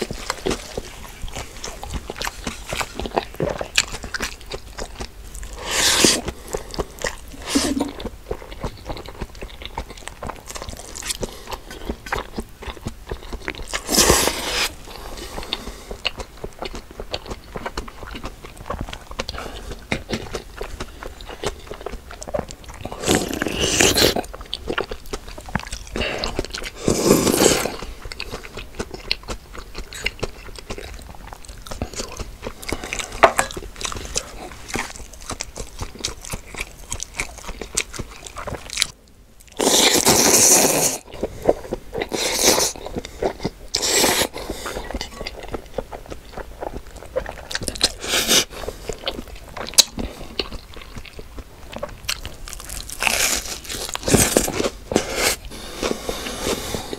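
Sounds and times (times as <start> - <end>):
crunching and chewing: 0.0 - 56.9
noisy bites or slurps: 5.6 - 6.6, 7.2 - 8.1, 13.7 - 15.6, 22.8 - 24.3, 26.1 - 27.9, 39.6 - 45.1.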